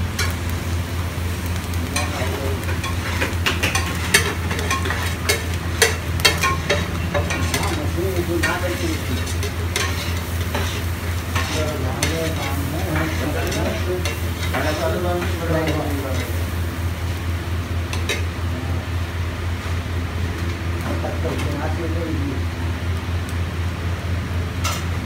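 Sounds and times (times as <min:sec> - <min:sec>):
eggs sizzling: 0:00.0 - 0:25.0
metal spatula clacking on griddle: 0:02.0 - 0:16.4.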